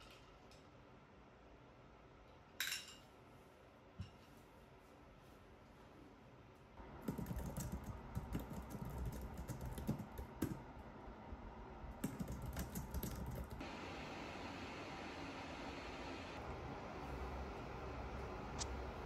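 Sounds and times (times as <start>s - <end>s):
steady hiss: 13.6s - 19.0s.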